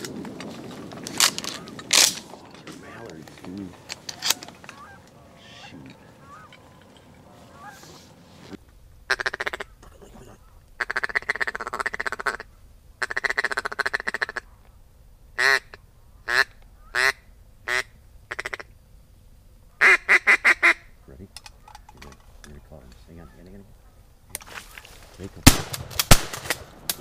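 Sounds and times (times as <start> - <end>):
duck call quacks: 7.5 - 8.0, 9.1 - 14.5, 15.4 - 18.7, 19.8 - 20.9.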